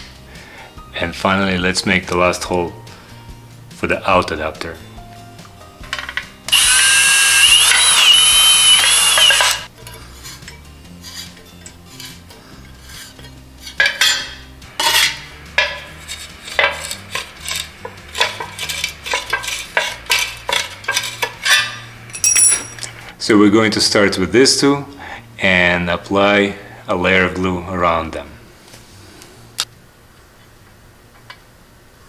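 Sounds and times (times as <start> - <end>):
hand tools clicking and scraping: 5.8 - 23.2
cordless drill whining: 6.5 - 9.7.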